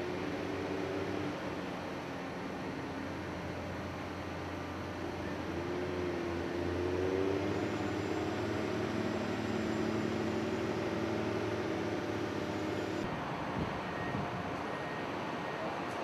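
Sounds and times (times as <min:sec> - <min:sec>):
heavy machinery drone: 0:00.0 - 0:13.2
motor whine: 0:06.7 - 0:13.1.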